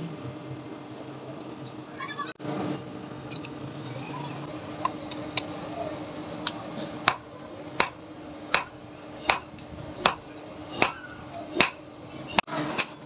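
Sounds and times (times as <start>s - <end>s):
steady low hum: 0.0s - 12.5s
hammer striking steel on anvil: 6.4s - 11.8s.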